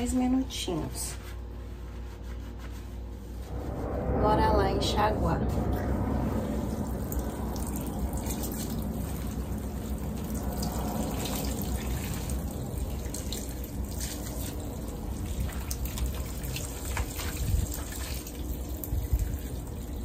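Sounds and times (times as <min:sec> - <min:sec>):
hands rinsing hair: 0:06.2 - 0:20.0
water drips and splashes: 0:06.2 - 0:20.0
water running from tap into sink: 0:06.7 - 0:20.0.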